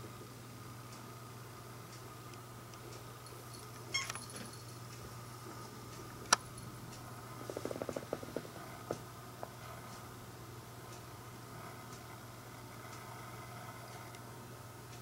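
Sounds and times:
soft ticks: 0.0 - 1.2, 1.8 - 4.2, 4.9 - 10.2, 10.8 - 15.0
cat collar bell jingling: 3.2 - 4.9.

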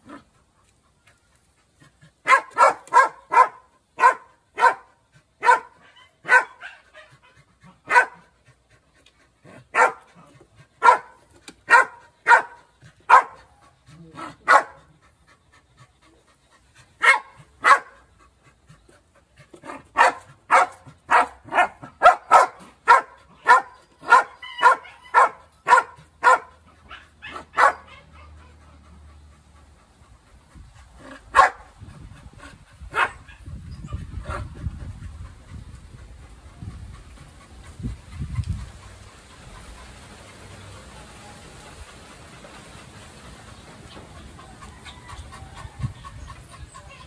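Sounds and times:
dog barking: 2.2 - 6.8, 7.9 - 8.2, 9.7 - 10.1, 10.8 - 13.4, 14.4 - 14.8, 17.0 - 18.0, 20.0 - 28.1, 31.3 - 31.6, 32.9 - 33.4.

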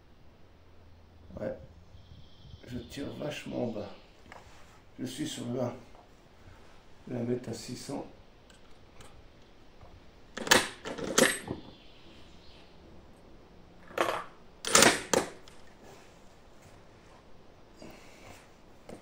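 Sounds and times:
rifle bolt metal clicks: 10.4 - 11.6, 13.9 - 15.6.

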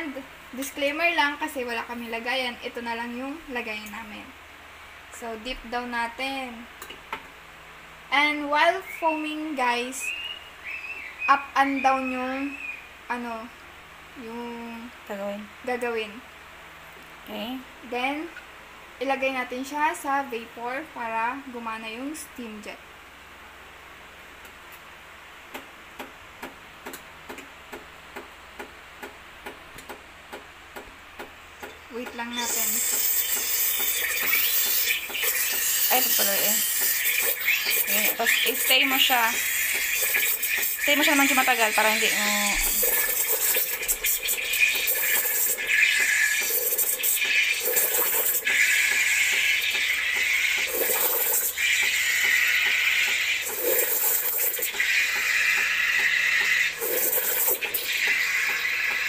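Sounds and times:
espresso machine ticking: 32.0 - 59.0
steam wand frothing milk: 32.2 - 59.0.

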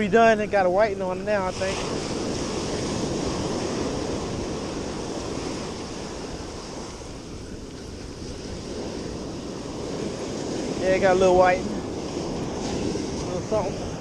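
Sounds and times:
ocean surf breaking: 0.0 - 14.0
wind rumbling on microphone: 0.0 - 14.0.

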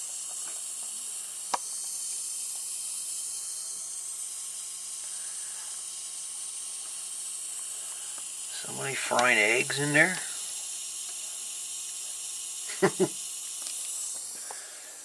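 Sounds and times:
power supply sizzling hiss: 0.0 - 15.0
sharp click: 9.1 - 9.4.

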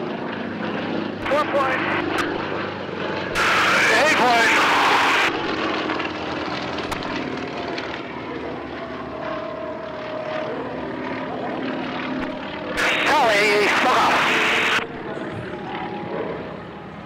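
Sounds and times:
propeller plane engines overhead: 0.0 - 17.0.

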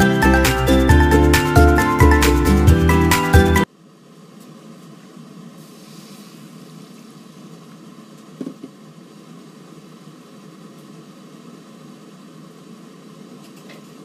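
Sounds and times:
water hissing and bubbling in wok: 5.5 - 7.4.

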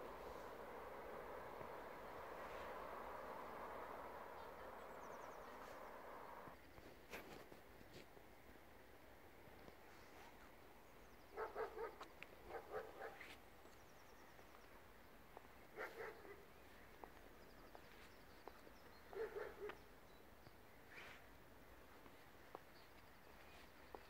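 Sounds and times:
dog barking faintly: 11.3 - 13.4, 15.7 - 16.6, 19.1 - 19.9.

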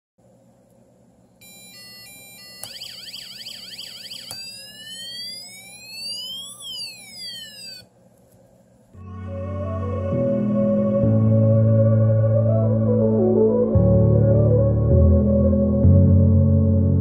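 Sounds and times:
electronic siren tones from speaker: 1.4 - 7.8.

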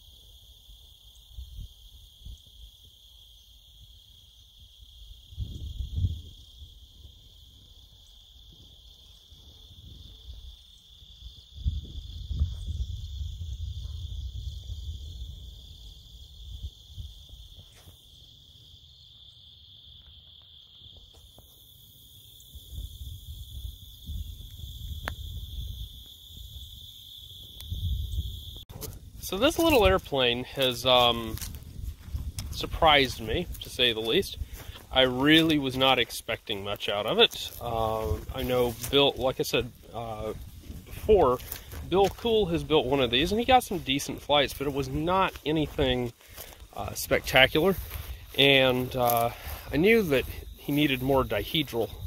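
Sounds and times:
insects droning: 0.0 - 52.0
wind rumble on microphone: 5.1 - 7.6, 9.4 - 17.6, 22.5 - 26.9, 27.5 - 35.1, 37.5 - 52.0.

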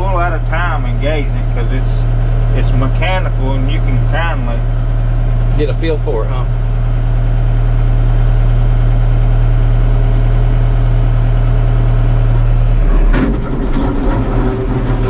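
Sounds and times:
tractor diesel engine running: 0.0 - 15.0
short clunk: 12.9 - 15.0.

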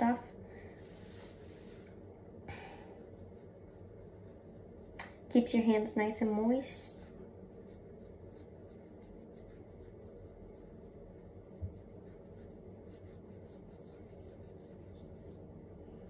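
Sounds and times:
low hum: 0.0 - 16.0
hands rubbing skin: 0.8 - 2.0, 3.0 - 5.3, 6.9 - 16.0.

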